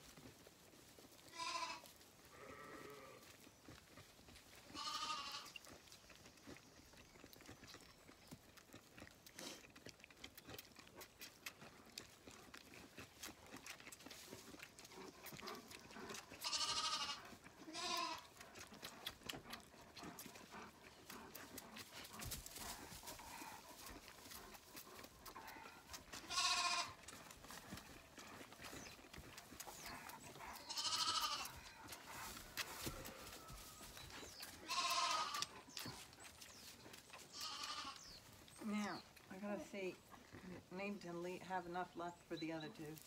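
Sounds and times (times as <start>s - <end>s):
lambs bleating: 1.3s - 3.3s, 4.7s - 5.7s, 16.3s - 18.4s, 26.2s - 27.0s, 30.6s - 31.6s, 34.6s - 35.6s, 37.2s - 38.0s.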